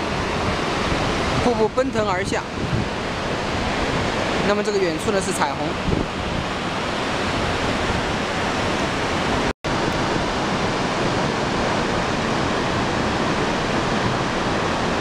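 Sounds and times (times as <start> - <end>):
waterfall roar: 0.0 - 15.0.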